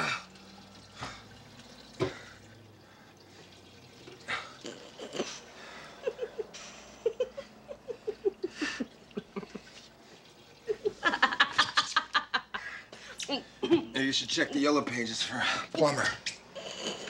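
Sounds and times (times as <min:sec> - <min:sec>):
person laughing: 0:05.1 - 0:09.8, 0:13.3 - 0:14.6.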